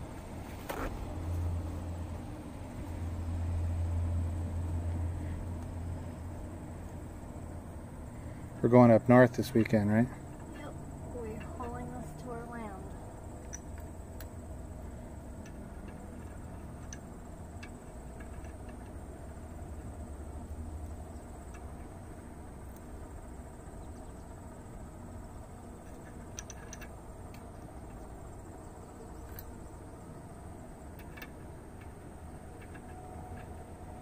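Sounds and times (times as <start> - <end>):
small metal parts clicking: 13.4 - 22.0, 25.3 - 29.9, 30.7 - 34.0.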